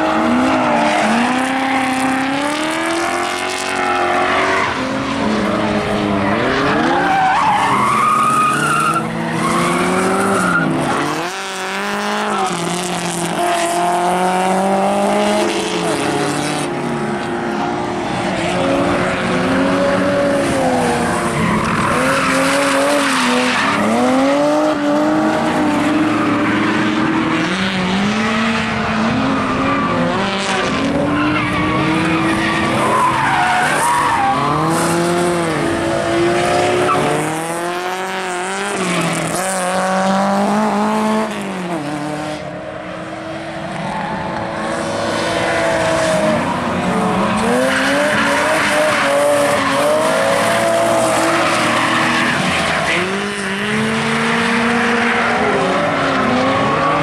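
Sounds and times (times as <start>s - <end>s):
car engine revving: 0.0s - 42.5s.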